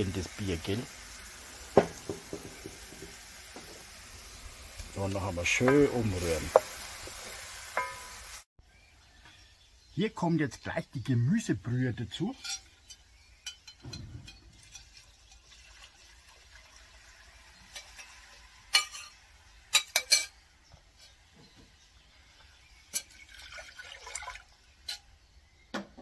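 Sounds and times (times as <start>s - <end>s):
metal clinking on metal: 7.8s - 8.2s, 12.4s - 15.0s
liquid pouring: 14.6s - 18.4s, 23.0s - 24.6s.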